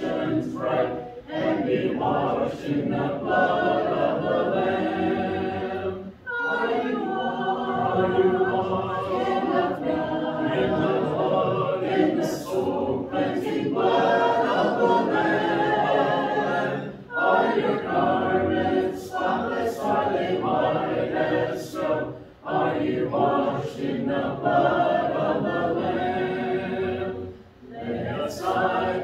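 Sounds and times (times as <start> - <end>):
congregation singing a hymn: 0.0 - 29.0.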